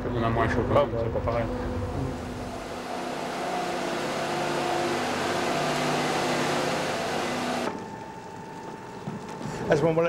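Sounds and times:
machine hum: 0.5s - 9.2s
rushing noise: 1.8s - 7.7s.

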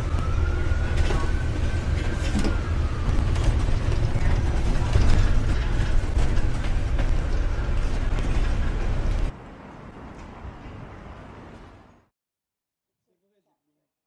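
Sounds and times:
bus engine and road rumble: 0.0s - 12.1s
bodywork rattling and creaking: 0.8s - 9.3s.

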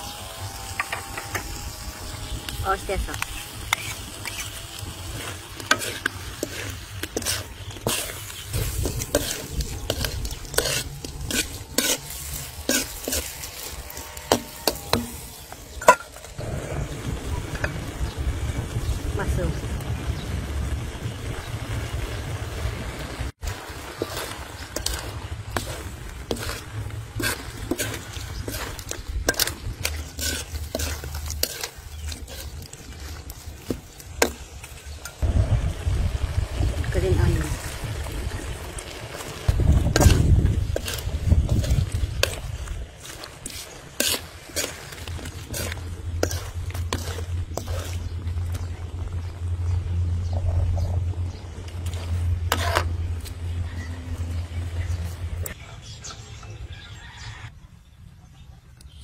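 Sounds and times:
sauce sizzling: 0.0s - 50.2s
metal ladle scraping a wok: 0.6s - 16.4s, 23.5s - 35.2s, 38.4s - 48.7s, 51.8s - 54.2s
low rumble: 16.1s - 43.4s, 44.3s - 55.8s.

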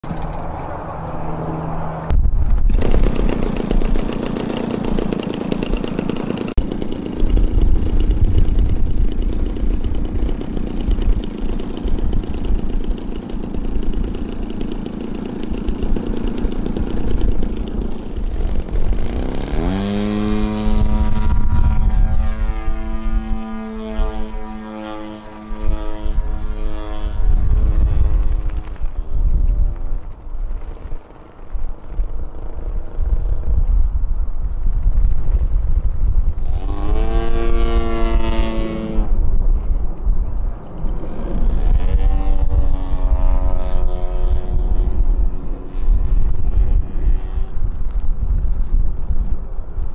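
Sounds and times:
model plane motor and propeller: 2.5s - 49.9s.

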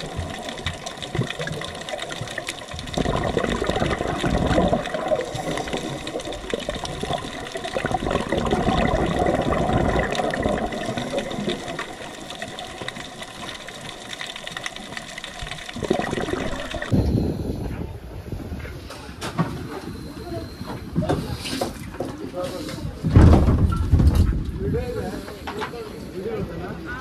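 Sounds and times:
water rushing and bubbling: 0.0s - 17.0s.

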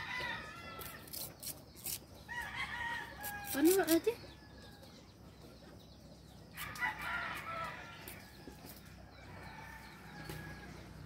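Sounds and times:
rooster crowing: 2.3s - 3.6s, 6.6s - 8.1s.

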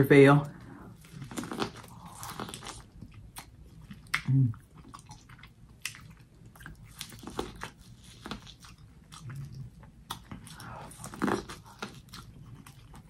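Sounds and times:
person chewing corn crunches: 1.0s - 13.0s
person humming: 4.3s - 4.6s.

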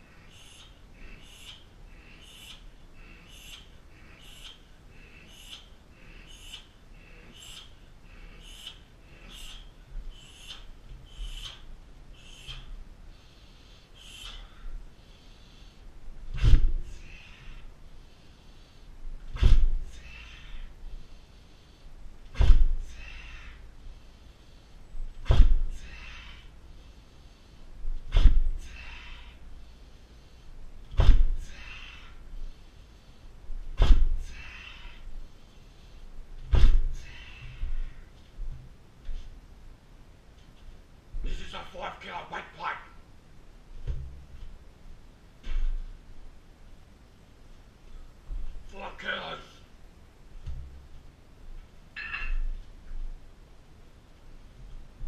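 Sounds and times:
fighter's sharp exhalations: 0.0s - 33.2s
sharp hissed exhalation: 12.2s - 15.8s
sledgehammer thuds on tyre: 16.4s - 16.8s, 19.4s - 19.8s, 22.3s - 22.8s, 25.2s - 25.7s, 28.1s - 28.5s, 31.0s - 31.4s, 33.8s - 34.2s, 36.5s - 37.0s.

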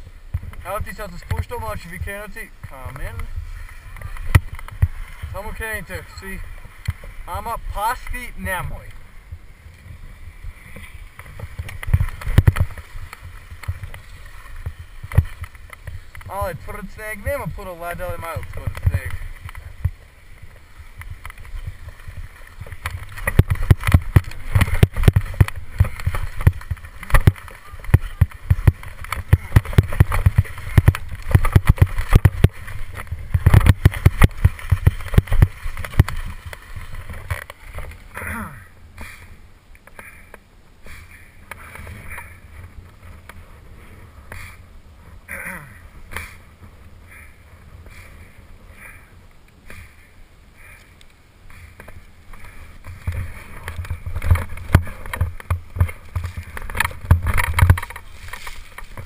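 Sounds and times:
wind rumble on microphone: 0.0s - 16.8s
skis scraping over hard snow: 0.4s - 38.1s, 51.6s - 59.0s.

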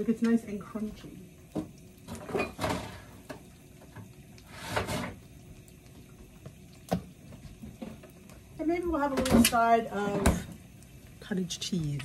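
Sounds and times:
fridge drawer sliding scrape: 4.5s - 5.2s.

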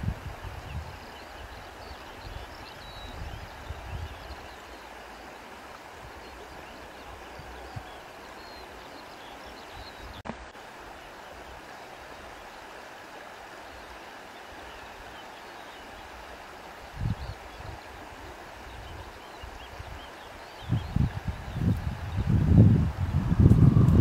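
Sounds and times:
wind buffeting microphone: 0.0s - 1.1s, 2.2s - 4.4s, 18.6s - 24.0s
flowing river water: 0.0s - 24.0s.

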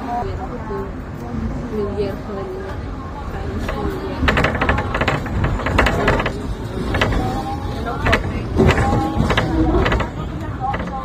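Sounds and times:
tram rumbling on rails: 0.0s - 11.0s
tram car knocks and rattles: 3.4s - 11.0s.

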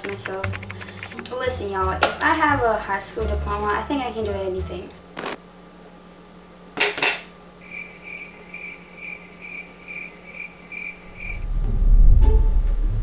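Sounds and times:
cricket chirping: 7.6s - 11.4s
loud deep rumble: 11.0s - 13.0s.

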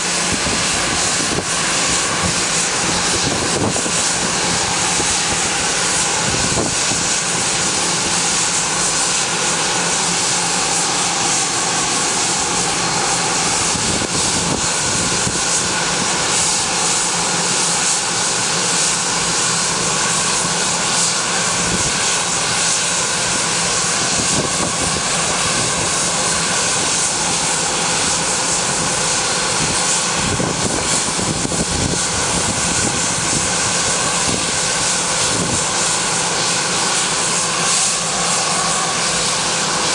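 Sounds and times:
jet engines idling: 0.0s - 39.9s.

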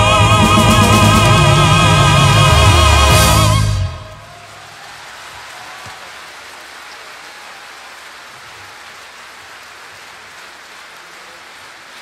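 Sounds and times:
audience applauding: 3.1s - 12.0s.

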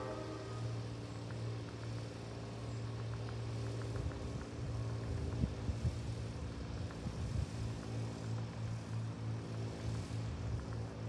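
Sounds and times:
steady hum: 0.0s - 2.7s
low throbbing mechanical drone: 0.0s - 11.0s.

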